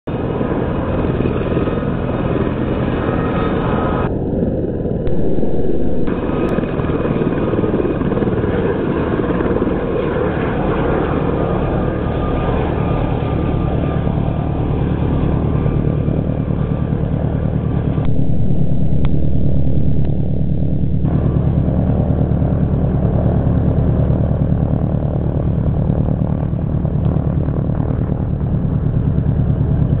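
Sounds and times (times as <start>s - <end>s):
helicopter rotor and turbine: 0.1s - 30.0s
low rumbles: 4.6s - 6.6s, 17.8s - 21.3s.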